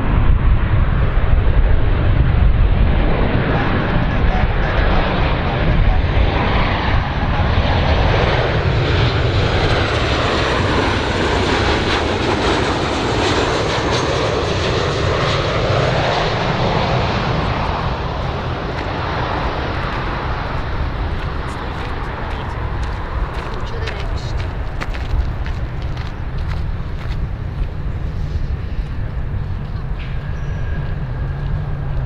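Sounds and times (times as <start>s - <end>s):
jet engines roaring: 0.0s - 32.0s.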